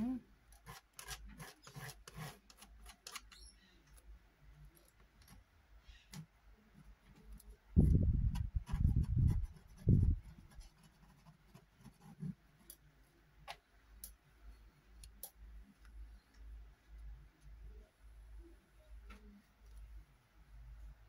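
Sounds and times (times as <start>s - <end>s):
palette knife scraping wood: 0.6s - 3.3s.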